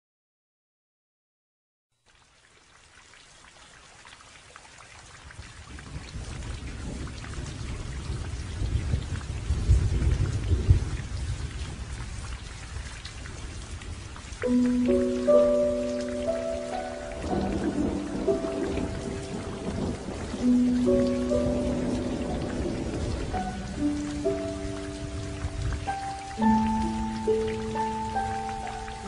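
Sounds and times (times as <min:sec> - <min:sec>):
steady rain: 0:02.0 - 0:29.0
rolling thunder: 0:05.8 - 0:28.6
music: 0:14.4 - 0:29.0.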